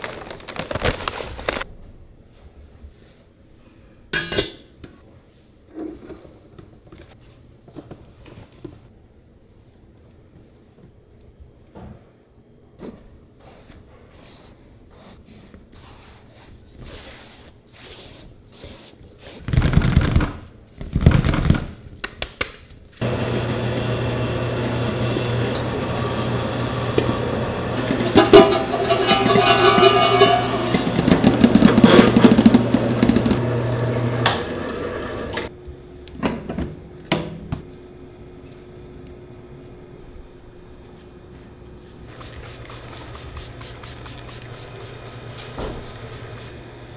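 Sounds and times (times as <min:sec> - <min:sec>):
mixer motor humming: 0:23.0 - 0:35.5, 0:42.1 - 0:46.9
beater clattering in metal bowl: 0:27.8 - 0:33.4.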